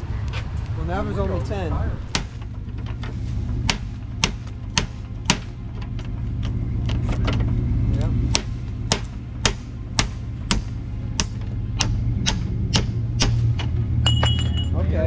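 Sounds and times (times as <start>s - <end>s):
steady low rumble: 0.0s - 15.0s
hammer striking metal chisel: 3.7s - 5.6s, 8.3s - 14.7s.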